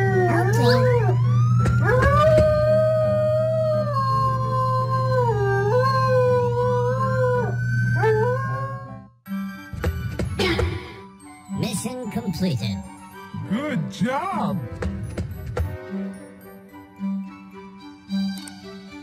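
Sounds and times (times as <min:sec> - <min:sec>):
dog howling: 0:00.0 - 0:09.0.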